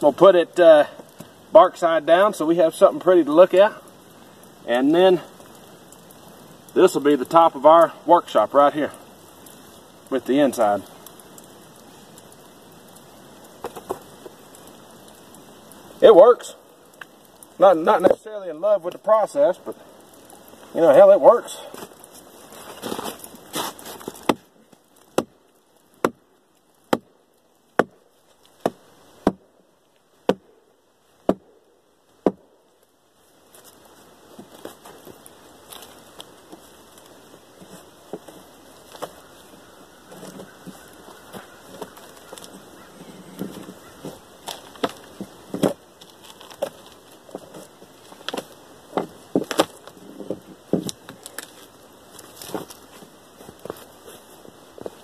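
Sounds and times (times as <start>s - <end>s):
tool knocking and cracking bark: 13.6s - 14.4s, 22.9s - 26.3s, 26.9s - 29.6s, 30.2s - 30.5s, 31.2s - 31.6s, 32.2s - 32.5s, 34.3s - 53.8s
hatchet chopping into log: 24.2s - 24.5s, 28.6s - 29.4s, 32.2s - 32.4s
bark splitting away: 34.3s - 53.0s.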